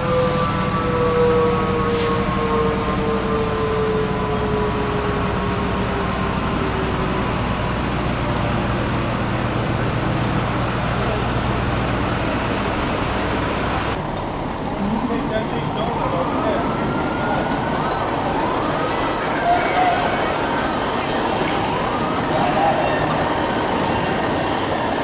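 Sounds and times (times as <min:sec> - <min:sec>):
siren winding down: 0:00.0 - 0:07.6
diesel engines idling: 0:00.0 - 0:25.0
street noise: 0:00.0 - 0:25.0.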